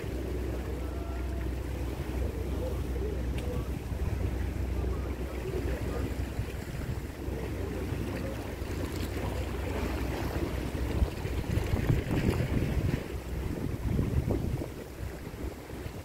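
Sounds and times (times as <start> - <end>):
low steady rumble: 0.0 - 16.0
wind buffeting microphone: 0.0 - 16.0.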